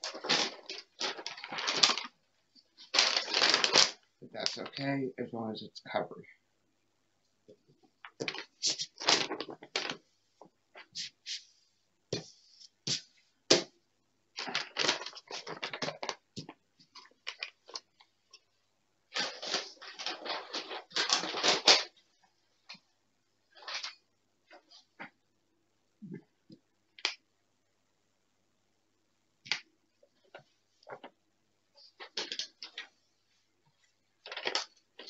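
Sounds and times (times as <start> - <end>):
plastic sheet crinkling: 0.0 - 4.8, 8.0 - 10.1, 14.4 - 18.4, 19.1 - 22.8, 23.5 - 25.1, 29.5 - 31.2, 31.8 - 33.0, 34.1 - 35.0.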